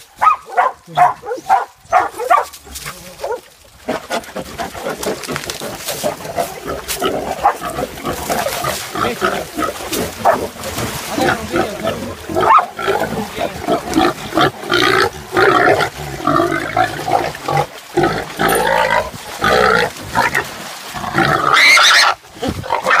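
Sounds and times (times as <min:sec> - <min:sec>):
pig squealing: 0:21.0 - 0:23.0.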